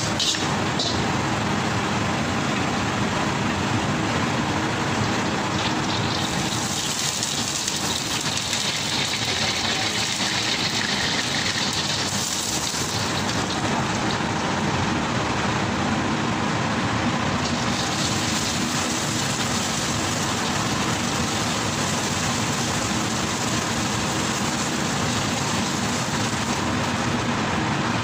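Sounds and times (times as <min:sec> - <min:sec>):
gas burner roaring: 0:00.0 - 0:28.0
egg sizzling in hot oil: 0:04.9 - 0:14.4, 0:17.4 - 0:27.3.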